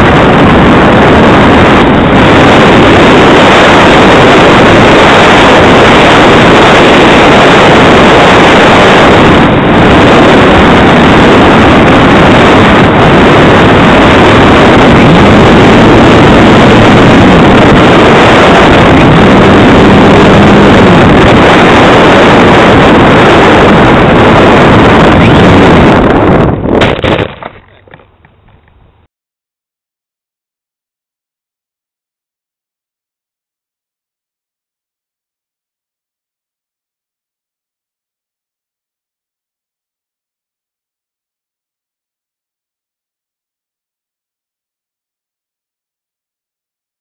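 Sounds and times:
wind rushing over microphone: 0:00.0 - 0:29.1.

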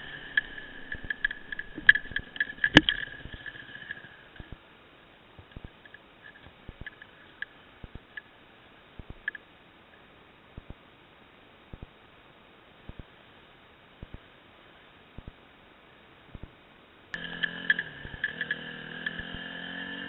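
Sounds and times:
dirt bike engine idling: 0:00.0 - 0:04.7, 0:17.1 - 0:20.0
faint clicks: 0:17.1 - 0:19.4.

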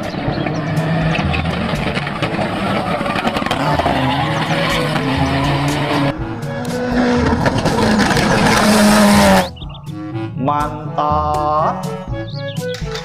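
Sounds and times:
racing car engine: 0:00.0 - 0:10.0
background music: 0:00.0 - 0:13.0
tyres squealing: 0:00.1 - 0:09.7.

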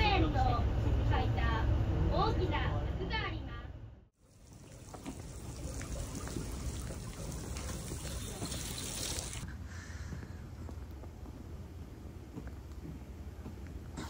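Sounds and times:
water trickling in gutter: 0:04.2 - 0:09.4.

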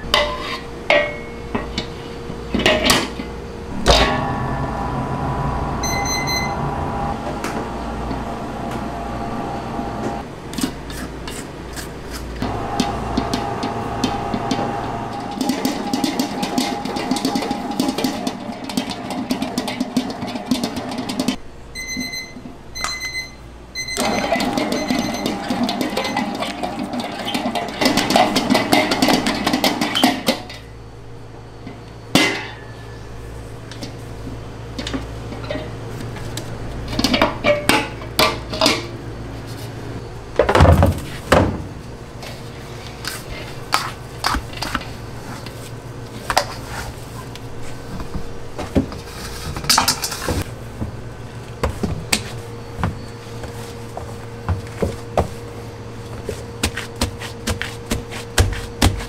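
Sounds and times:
metallic clanks and knocks: 0:02.6 - 0:08.2
stand mixer kneading dough: 0:12.4 - 0:21.4, 0:24.0 - 0:30.2.

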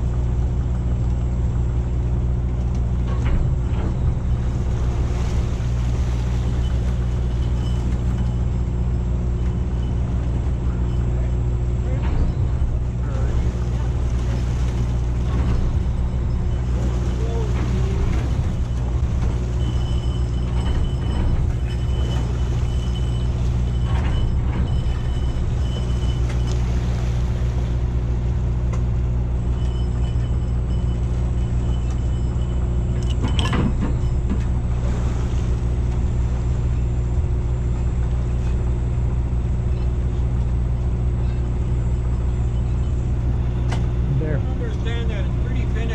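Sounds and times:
boat engine droning: 0:00.0 - 0:45.9
faint high whine: 0:05.2 - 0:12.4, 0:15.8 - 0:28.0.

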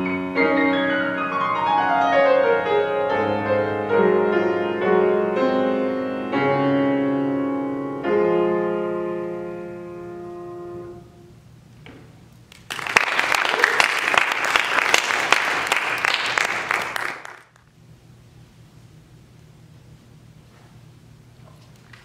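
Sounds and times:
grand piano chord ringing: 0:00.0 - 0:11.4
audience applause: 0:12.5 - 0:17.6.

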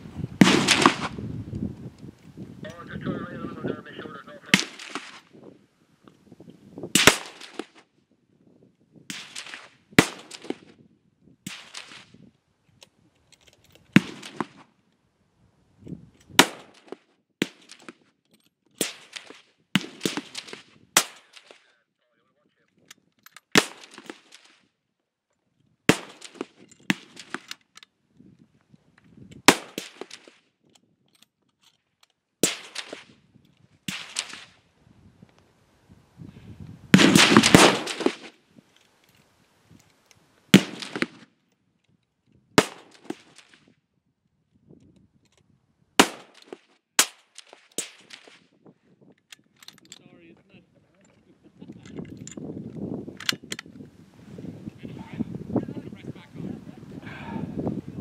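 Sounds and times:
rifle shots: 0:00.4 - 0:01.2, 0:04.2 - 0:05.2, 0:07.0 - 0:07.8, 0:09.1 - 0:10.7, 0:14.0 - 0:14.6, 0:16.4 - 0:17.9, 0:18.8 - 0:21.7, 0:23.5 - 0:24.5, 0:25.9 - 0:27.4, 0:29.5 - 0:30.4, 0:32.4 - 0:33.1, 0:33.9 - 0:34.5, 0:36.9 - 0:38.3, 0:40.5 - 0:41.3, 0:42.6 - 0:43.6, 0:46.0 - 0:48.4.

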